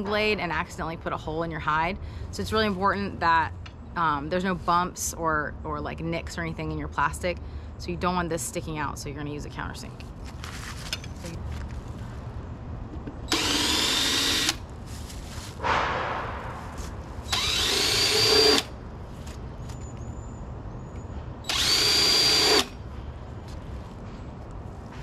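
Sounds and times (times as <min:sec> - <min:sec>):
cordless drill whining: 0:13.3 - 0:14.6, 0:17.3 - 0:18.7, 0:21.5 - 0:22.7
brief rushing noise: 0:15.6 - 0:17.1.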